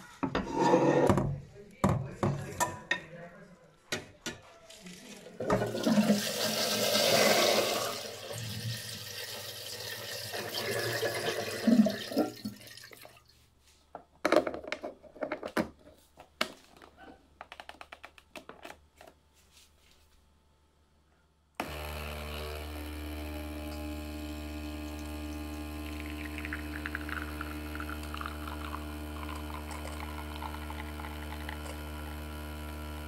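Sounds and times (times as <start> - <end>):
water splashing into a sink: 5.4 - 13.3, 25.0 - 31.8
espresso machine humming: 21.6 - 33.0.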